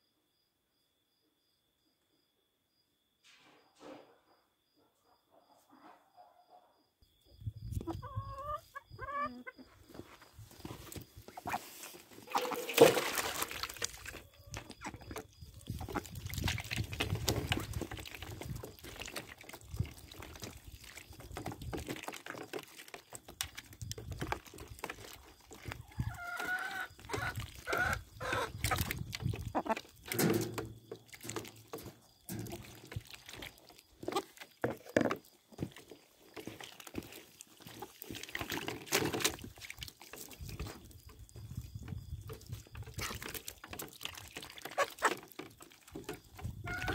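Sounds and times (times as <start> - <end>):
hens clucking: 7.7 - 13.3, 14.0 - 16.5, 24.8 - 30.7, 44.4 - 46.9
birds pecking at metal tray: 10.6 - 46.9
small water splashes: 11.0 - 34.6, 35.6 - 46.9.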